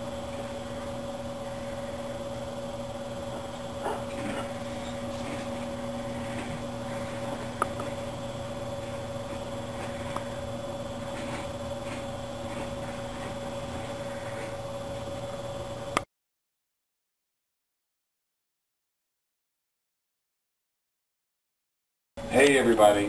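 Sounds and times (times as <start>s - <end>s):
machine hum with whine: 0.0s - 16.1s, 22.2s - 23.0s.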